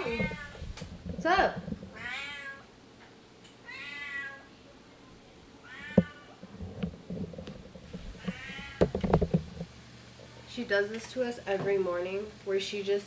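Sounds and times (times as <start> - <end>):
cat meowing loudly: 0.0 - 0.6, 2.0 - 2.7, 3.6 - 4.5, 5.6 - 6.4, 8.2 - 9.0.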